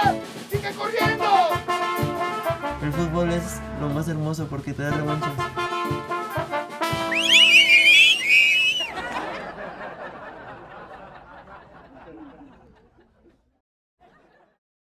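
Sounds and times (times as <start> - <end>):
brass band music: 0.0 - 8.8
high wavering cries: 7.2 - 8.9
people laughing: 8.6 - 14.6.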